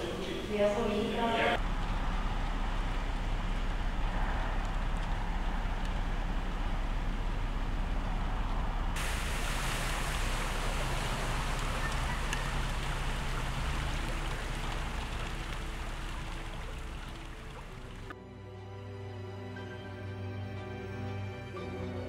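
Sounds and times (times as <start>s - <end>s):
running floodwater: 0.0s - 18.2s
faint music: 0.0s - 22.0s
rain and storm rumble: 1.5s - 18.2s.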